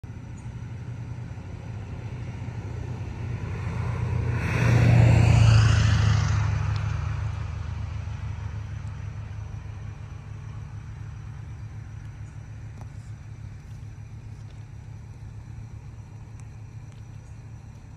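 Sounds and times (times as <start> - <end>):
low engine rumble: 0.0 - 17.9
vehicle passing by: 0.0 - 17.9.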